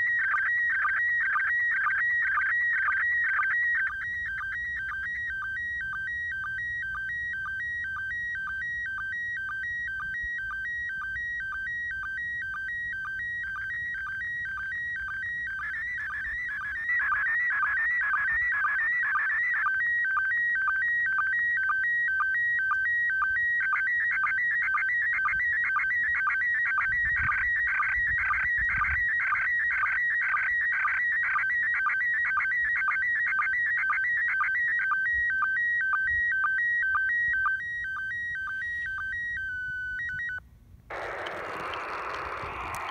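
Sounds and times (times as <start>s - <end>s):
chirping radio signal tones: 12.6s - 19.7s, 40.9s - 42.9s.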